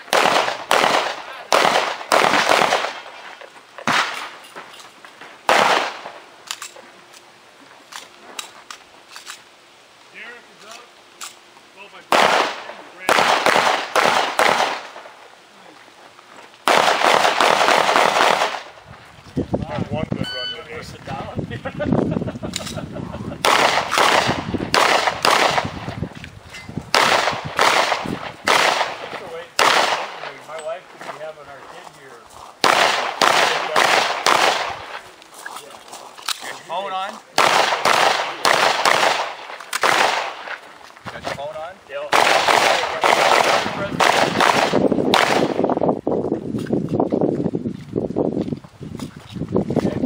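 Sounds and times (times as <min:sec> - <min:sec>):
gunshots echoing: 0:00.0 - 0:03.2, 0:03.8 - 0:04.4, 0:05.4 - 0:06.2, 0:12.1 - 0:15.2, 0:16.6 - 0:18.8, 0:23.4 - 0:26.0, 0:26.9 - 0:30.6, 0:32.6 - 0:35.0, 0:37.4 - 0:40.6, 0:42.0 - 0:45.7.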